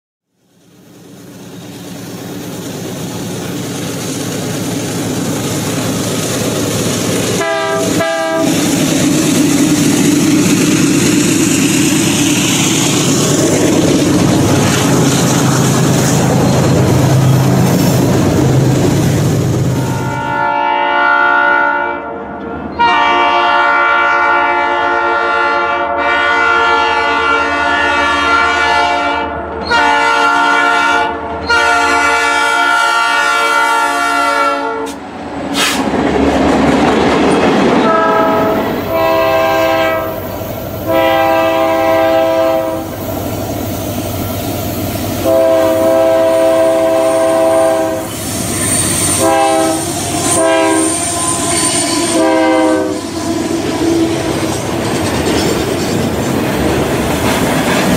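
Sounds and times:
running train noise: 0:00.3 - 0:57.9
hissing rush: 0:00.5 - 0:20.0, 0:35.0 - 0:41.4, 0:47.8 - 0:57.9
multi-tone train horn blasts: 0:07.4 - 0:08.8, 0:19.8 - 0:35.8, 0:37.8 - 0:43.1, 0:45.2 - 0:54.4.

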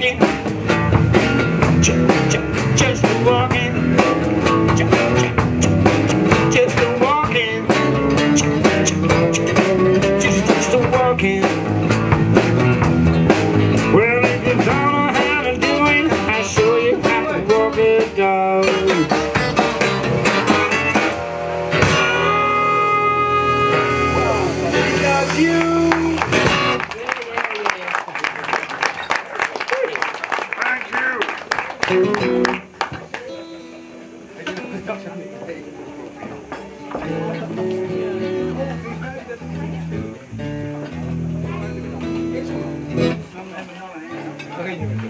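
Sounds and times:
acoustic guitars: 0:00.0 - 0:27.0, 0:31.0 - 0:45.0
bass guitar: 0:00.0 - 0:27.0, 0:31.7 - 0:45.0
drum kit: 0:00.0 - 0:27.0, 0:31.8 - 0:43.4
harmonica lead lines: 0:14.8 - 0:26.8.

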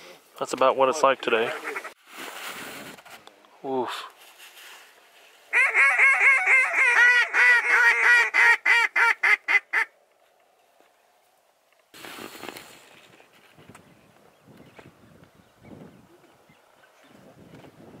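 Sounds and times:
duck call quacks: 0:01.4 - 0:02.0, 0:05.5 - 0:09.9
brief rustling: 0:11.9 - 0:13.9.

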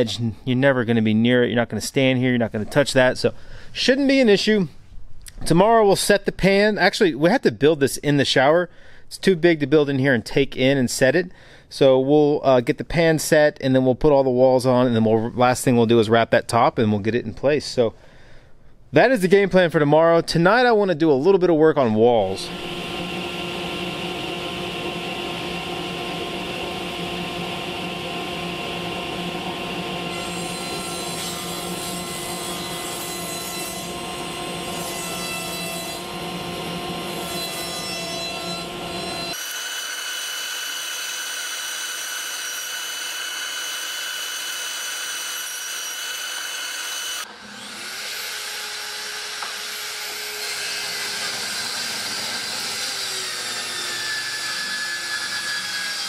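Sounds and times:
circular saw whining: 0:22.3 - 0:56.0
table saw cutting panel: 0:22.3 - 0:56.0.

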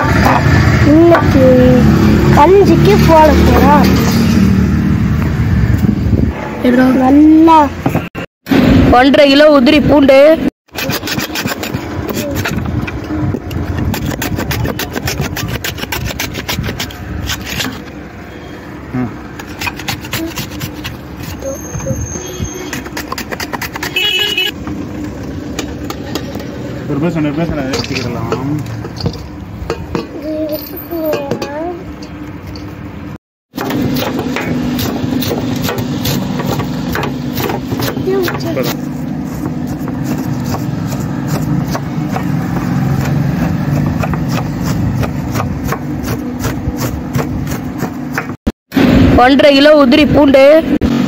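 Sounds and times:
onion rasping across slicer blade: 0:10.7 - 0:18.0, 0:19.2 - 0:24.5, 0:33.6 - 0:48.4
knife chopping on wooden board: 0:33.6 - 0:48.4.

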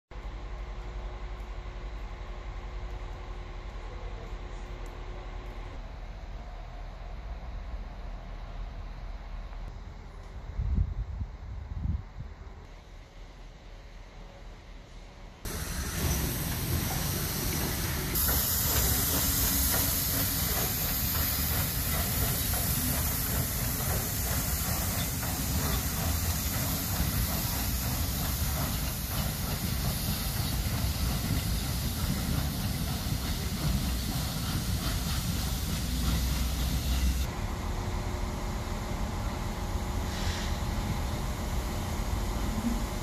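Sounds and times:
steam locomotive moving: 0:12.4 - 0:43.0
loud hiss of escaping steam: 0:15.5 - 0:37.3, 0:40.0 - 0:41.1.

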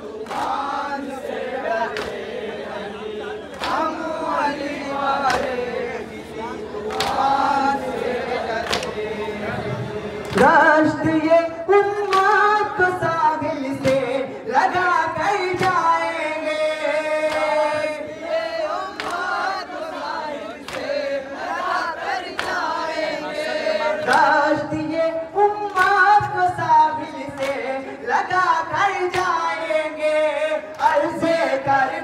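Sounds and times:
man reciting into a microphone: 0:00.0 - 0:21.3, 0:22.6 - 0:32.0
men singing a lament: 0:00.0 - 0:32.0
chest-beating slaps: 0:01.9 - 0:02.3, 0:06.9 - 0:07.3, 0:08.6 - 0:09.0.

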